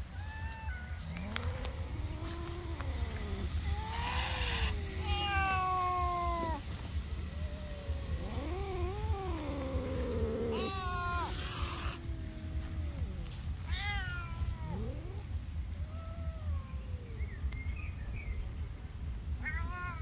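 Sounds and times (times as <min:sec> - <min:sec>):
cat yowling: 0:00.0 - 0:17.2, 0:19.4 - 0:20.0
cat hissing: 0:00.2 - 0:15.2.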